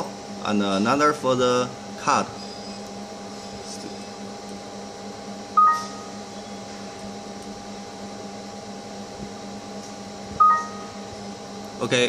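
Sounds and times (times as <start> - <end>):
computer electrical hum: 0.0 - 12.0
electronic beep: 5.6 - 6.1, 10.4 - 10.9.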